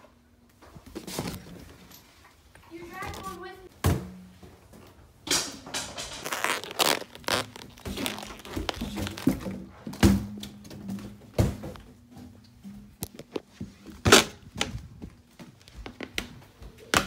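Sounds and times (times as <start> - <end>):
balloons rubbing and squeaking: 6.1 - 9.6.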